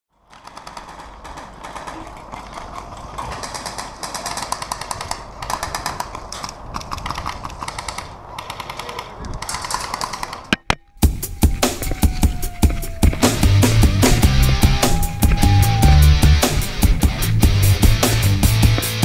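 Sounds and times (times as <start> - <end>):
airsoft guns firing bursts: 0.2 - 10.5.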